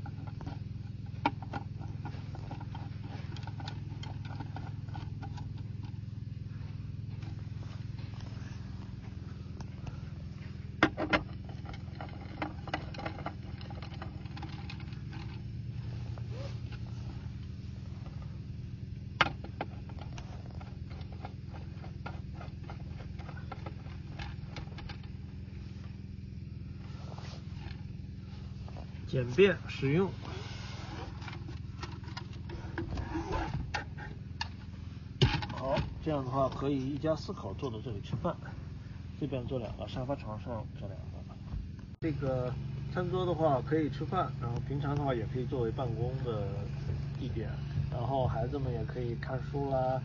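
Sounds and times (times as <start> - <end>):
low fluttering hum: 0.0 - 50.0.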